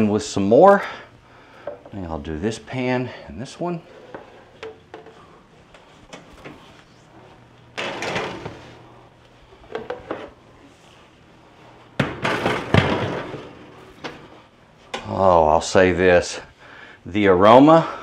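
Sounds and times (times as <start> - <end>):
metal baking sheets clattering: 7.8 - 8.7, 12.0 - 14.3.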